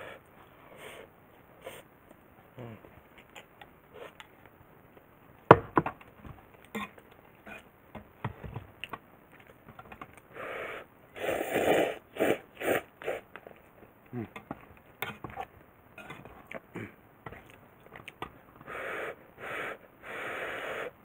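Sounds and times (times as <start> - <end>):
loud noodle slurping: 10.4 - 13.3.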